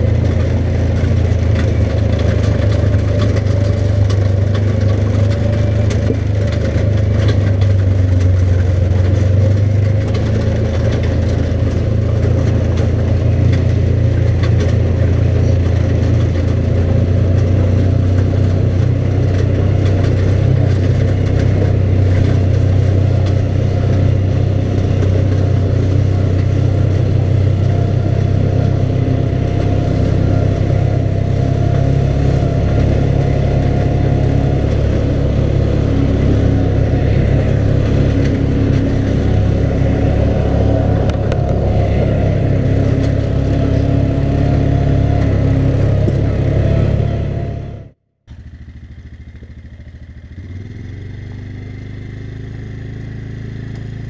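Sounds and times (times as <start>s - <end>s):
atv engine running: 0.0s - 54.0s.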